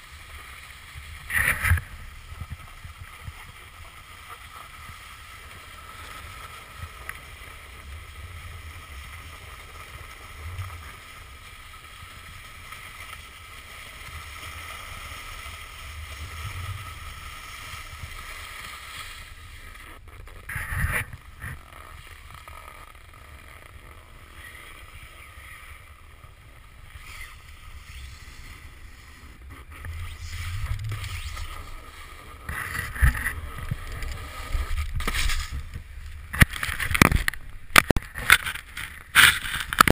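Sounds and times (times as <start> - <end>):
snowboard scraping over snow: 0.0 - 39.9
wind on microphone: 25.3 - 39.9.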